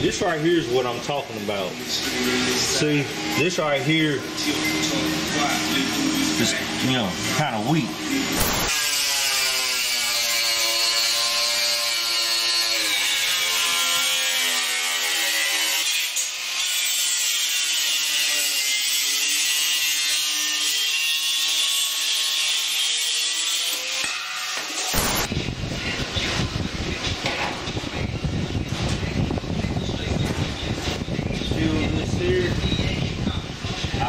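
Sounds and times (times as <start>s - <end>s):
angle grinder cutting steel: 2.0s - 25.3s.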